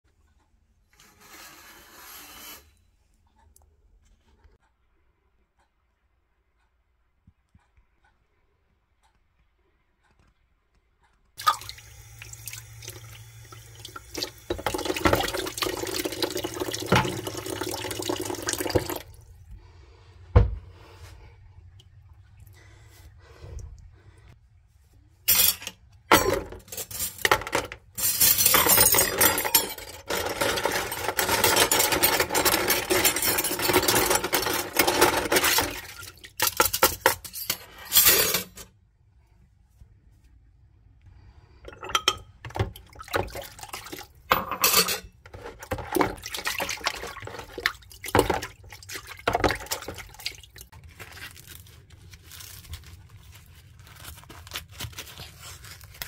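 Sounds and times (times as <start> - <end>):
running water: 11.4 - 19.4, 45.3 - 50.8
jar and cups clinking: 41.7 - 42.3, 44.3 - 47.4
water sloshing: 45.3 - 51.3.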